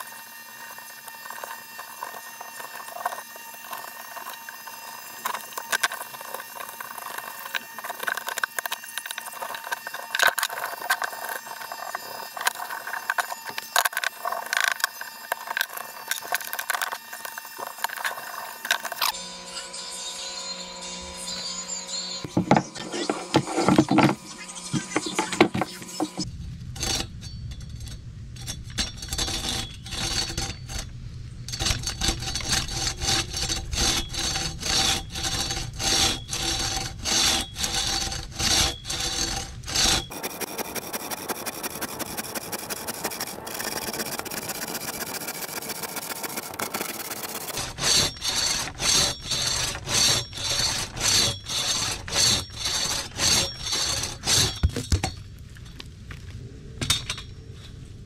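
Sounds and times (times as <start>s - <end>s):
crosscut saw rasping through log: 0.0s - 19.2s, 28.4s - 30.9s, 31.5s - 55.0s.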